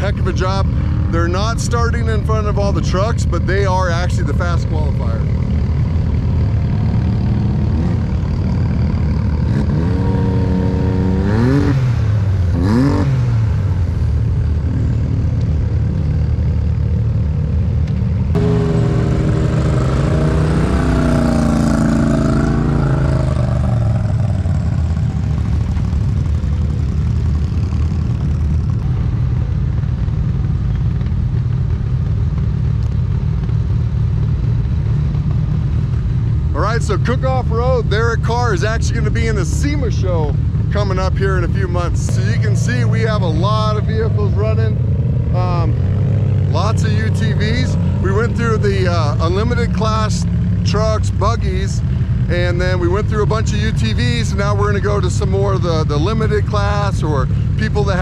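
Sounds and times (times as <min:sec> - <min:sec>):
race vehicle engines running: 0:00.0 - 0:58.0
engine revving: 0:06.4 - 0:16.8, 0:18.3 - 0:25.6, 0:36.6 - 0:58.0
vehicle accelerating hard: 0:06.5 - 0:16.8, 0:18.3 - 0:29.3, 0:30.5 - 0:58.0.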